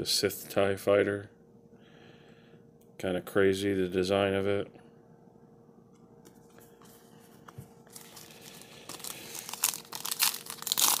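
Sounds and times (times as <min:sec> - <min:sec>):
foil wrapper crinkling and tearing: 0:07.9 - 0:11.0.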